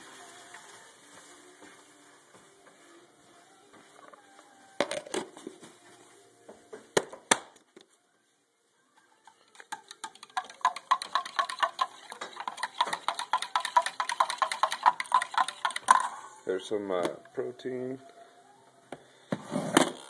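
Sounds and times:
spoon clicking in plastic cup: 0:09.2 - 0:16.1.

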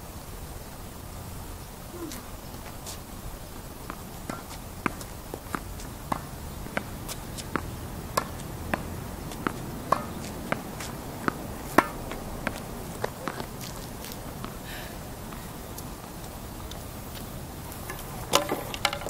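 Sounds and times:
tennis ball pops: 0:07.6 - 0:10.4, 0:11.3 - 0:13.5.

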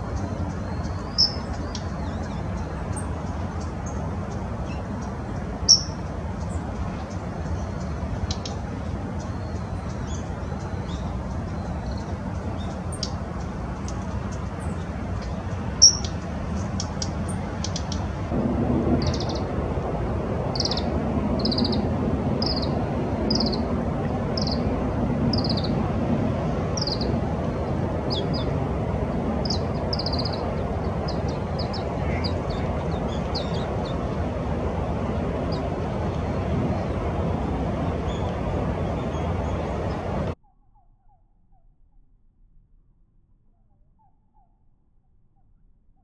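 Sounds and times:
small songbird calling: 0:00.0 - 0:04.0, 0:04.6 - 0:08.6, 0:09.2 - 0:18.2, 0:19.0 - 0:19.5, 0:20.5 - 0:25.9, 0:26.7 - 0:28.6, 0:29.4 - 0:34.3.

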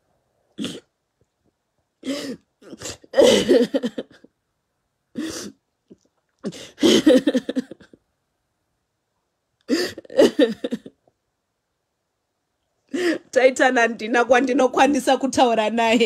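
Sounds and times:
woman sobbing: 0:02.0 - 0:04.3, 0:06.4 - 0:08.0, 0:09.7 - 0:11.0.

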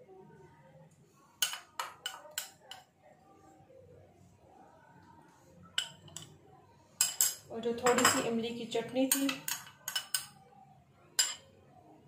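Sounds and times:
spoon clinking against bowl: 0:01.4 - 0:02.9, 0:05.8 - 0:06.3, 0:07.0 - 0:08.3, 0:09.1 - 0:10.4, 0:11.2 - 0:11.5.

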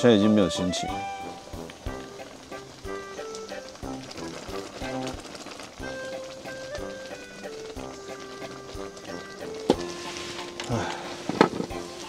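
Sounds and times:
background music with held notes: 0:00.0 - 0:12.0
scraping rustle: 0:04.2 - 0:12.0.

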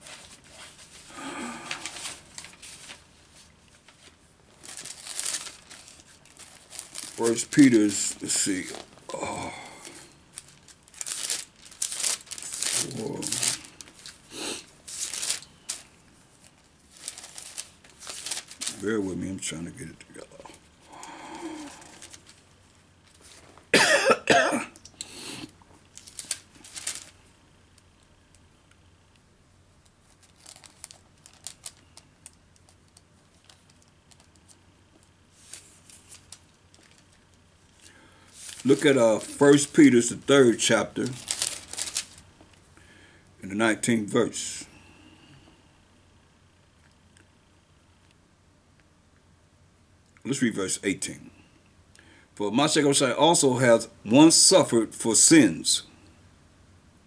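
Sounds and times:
thin pages rustling: 0:00.0 - 0:09.1, 0:09.8 - 0:19.0, 0:21.7 - 0:23.7, 0:25.9 - 0:27.2, 0:29.8 - 0:37.4, 0:38.3 - 0:42.3
man coughing: 0:23.7 - 0:24.8.

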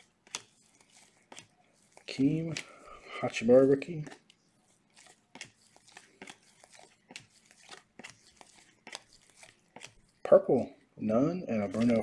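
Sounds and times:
trading cards swishing and clicking: 0:00.0 - 0:10.3, 0:11.5 - 0:12.0.

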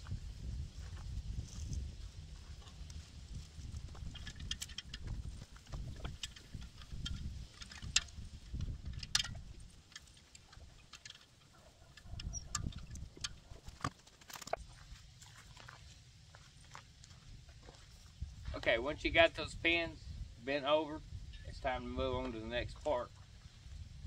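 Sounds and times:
footsteps in dry grass: 0:00.0 - 0:18.6, 0:23.1 - 0:24.0
sharp metal clicks and taps: 0:04.1 - 0:14.6.

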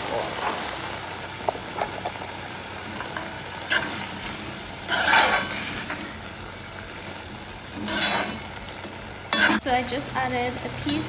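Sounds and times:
food sizzling: 0:00.0 - 0:11.0
metal spoon scraping pot: 0:04.9 - 0:06.0, 0:07.8 - 0:08.5, 0:09.3 - 0:09.7.

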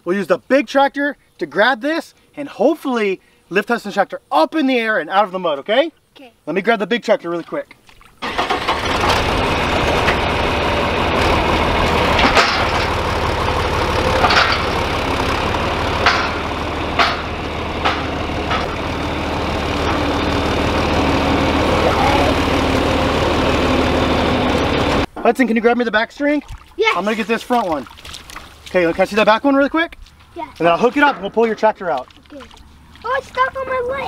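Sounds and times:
tractor engine running: 0:08.2 - 0:25.2
sharp metal clanks: 0:12.2 - 0:13.0, 0:14.1 - 0:14.9, 0:16.0 - 0:18.8.

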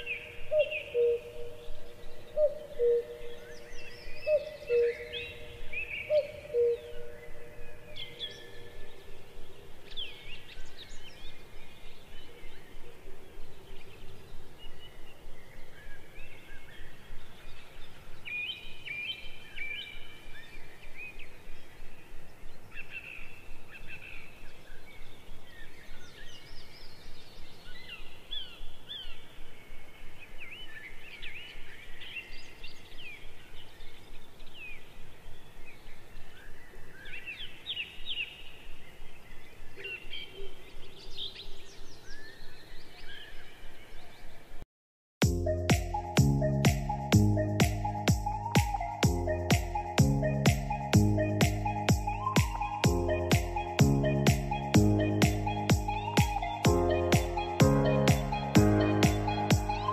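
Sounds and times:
small birds chirping: 0:45.5 - 0:59.9.

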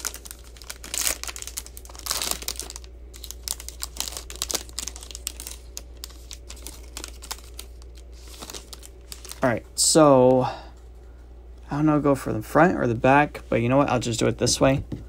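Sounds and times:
foil wrapper crinkling: 0:00.0 - 0:09.6.

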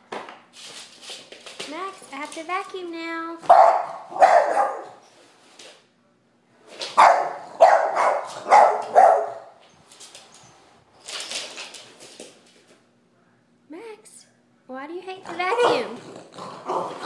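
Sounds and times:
dog barking: 0:03.4 - 0:05.0, 0:07.0 - 0:09.6.

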